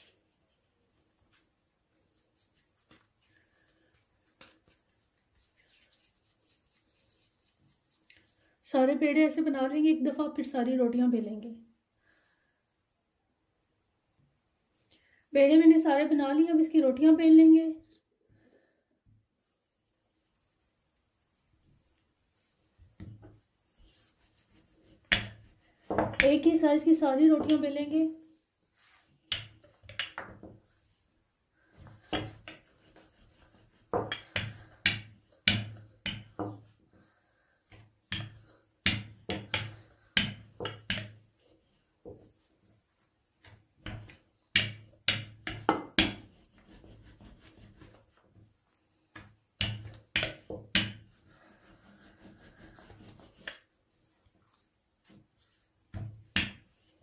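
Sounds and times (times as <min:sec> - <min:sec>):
rolling pin rolling dough: 0:21.2 - 0:27.8, 0:28.7 - 0:37.0, 0:37.6 - 0:57.0.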